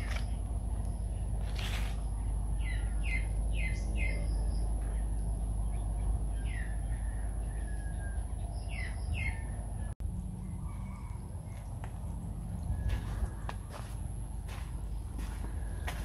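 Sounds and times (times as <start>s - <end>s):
birds chirping: 0.0s - 11.9s
low rumble: 0.0s - 16.0s.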